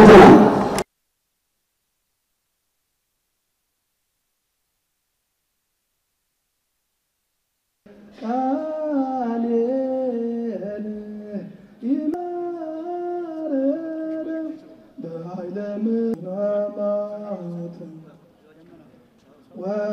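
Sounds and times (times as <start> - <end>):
slow chanting in held notes: 7.9 - 18.1, 19.6 - 19.9.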